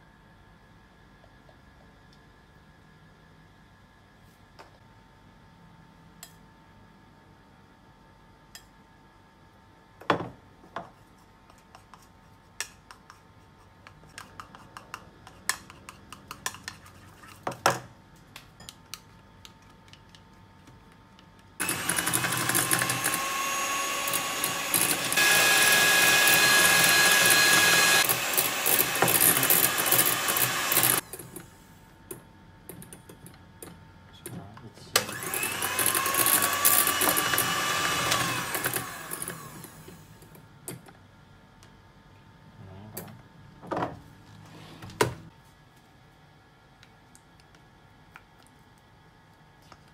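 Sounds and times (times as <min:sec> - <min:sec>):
electric hand mixer whipping: 0:21.6 - 0:31.1, 0:35.0 - 0:40.0.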